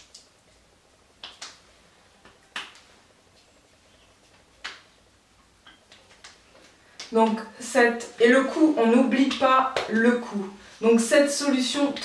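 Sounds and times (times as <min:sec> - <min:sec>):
hands patting skin: 0:01.2 - 0:01.6, 0:02.2 - 0:02.9, 0:05.7 - 0:07.4.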